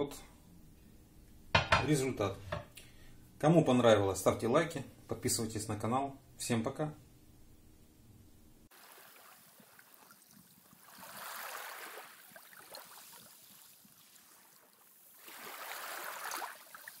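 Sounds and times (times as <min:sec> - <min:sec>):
water washing in swells: 0:08.7 - 0:17.0
fine crackle: 0:12.6 - 0:15.4.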